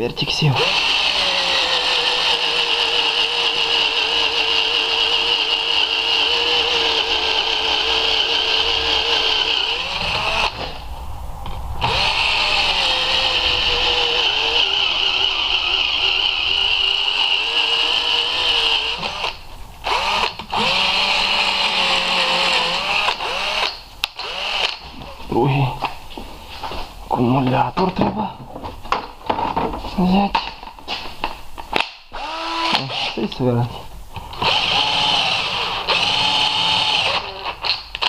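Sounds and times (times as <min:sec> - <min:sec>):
cordless drill whining: 0:00.6 - 0:10.8, 0:11.8 - 0:24.8, 0:32.2 - 0:33.2, 0:34.2 - 0:37.8.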